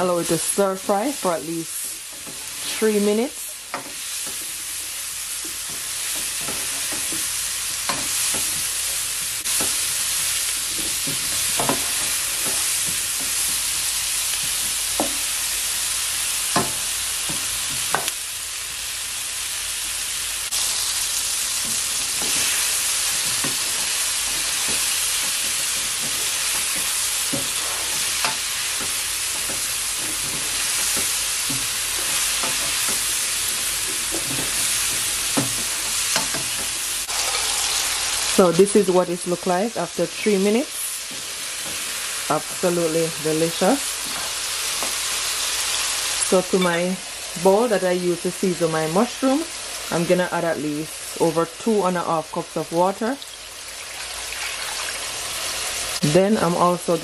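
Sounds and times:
vegetables sizzling in a frying pan: 0.0 - 57.0
spatula scraping and knocking on pan: 5.4 - 13.6, 21.6 - 37.5.

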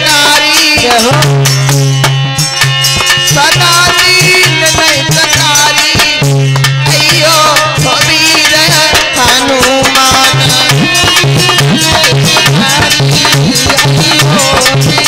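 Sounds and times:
harmonium chords: 0.0 - 15.0
bending melody line: 9.8 - 15.0.

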